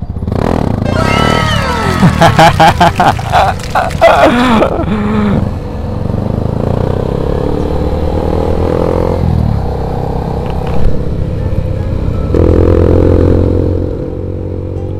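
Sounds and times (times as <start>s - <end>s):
motorcycle engines under throttle: 0.0s - 0.9s.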